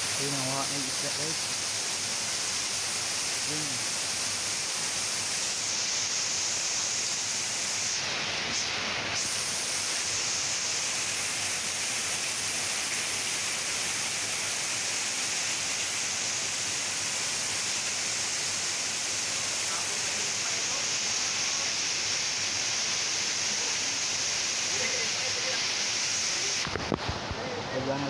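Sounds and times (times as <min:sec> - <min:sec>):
waterfall rushing over rocks: 0:00.0 - 0:28.0.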